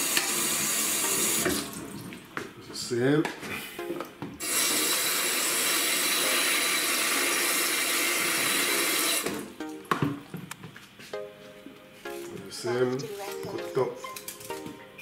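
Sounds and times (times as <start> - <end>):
tap running water into tub: 0.0 - 2.5, 4.0 - 10.4.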